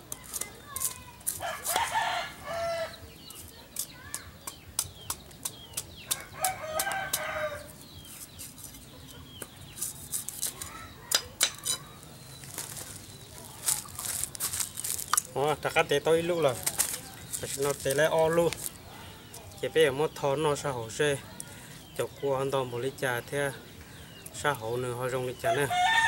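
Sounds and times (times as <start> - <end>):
rooster crowing: 1.4 - 3.0, 6.2 - 7.7, 25.4 - 26.0
machete chopping coconut: 3.8 - 7.4.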